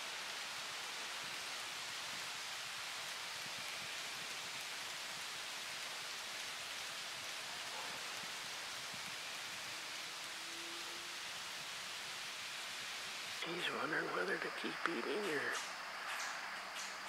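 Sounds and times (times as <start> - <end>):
outdoor background hiss: 0.0 - 17.0.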